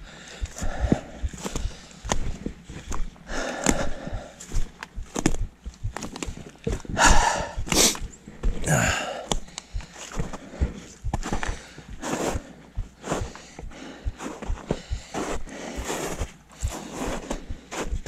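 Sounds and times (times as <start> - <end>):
footsteps crunching on pine needles: 1.3 - 8.7.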